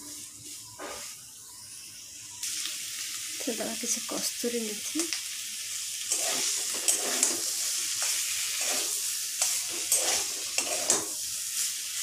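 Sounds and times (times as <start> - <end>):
frying sizzle: 0.0 - 12.0
metal spatula scraping pan: 6.1 - 11.2.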